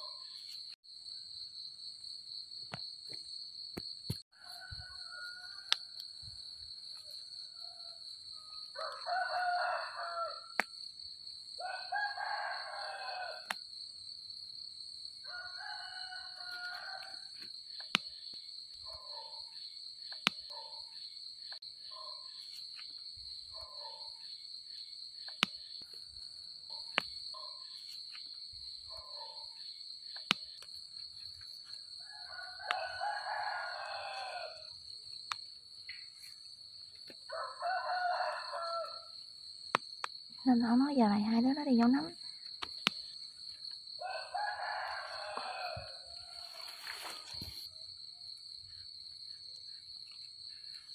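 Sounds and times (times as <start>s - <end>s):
roosters crowing: 4.4s - 6.0s, 7.5s - 10.5s, 11.6s - 13.5s, 15.2s - 17.3s, 32.0s - 34.8s, 37.3s - 39.1s, 44.0s - 47.7s.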